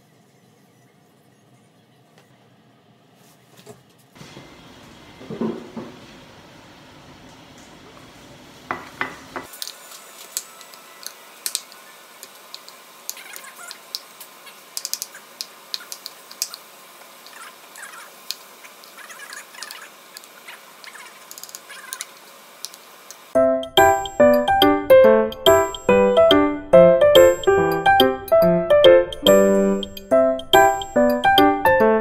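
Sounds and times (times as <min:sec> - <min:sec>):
chiming music melody: 0:23.4 - 0:32.0.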